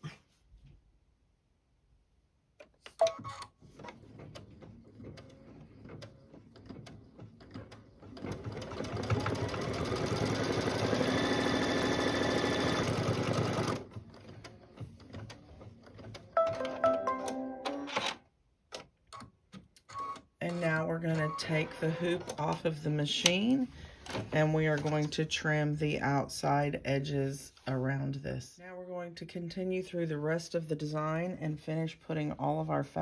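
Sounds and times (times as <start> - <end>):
embroidery machine stitching: 3.6 - 16.4, 20.1 - 25.2.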